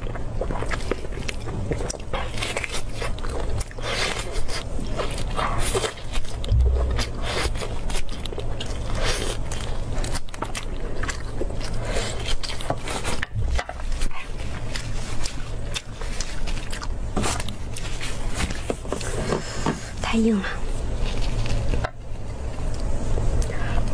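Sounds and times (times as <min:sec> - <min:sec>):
wet crackling chewing: 0:00.0 - 0:19.6, 0:20.2 - 0:23.9
gnawing meat off bone: 0:00.0 - 0:19.8
low bumps: 0:06.5 - 0:08.0.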